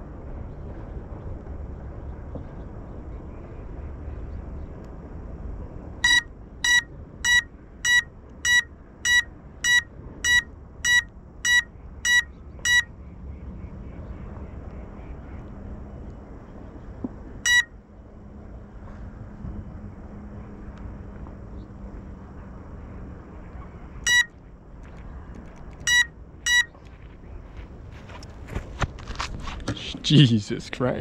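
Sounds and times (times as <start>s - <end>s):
short electronic beeps: 6.0s - 12.9s, 17.4s - 17.7s, 24.0s - 24.3s, 25.8s - 26.7s.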